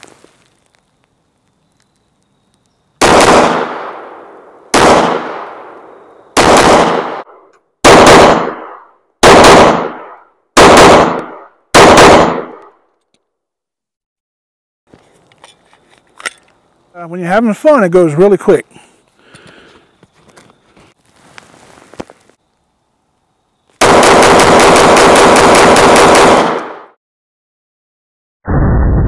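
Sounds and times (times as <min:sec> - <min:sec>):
pistol shots: 0:03.0 - 0:05.8, 0:06.4 - 0:12.6, 0:23.8 - 0:26.9.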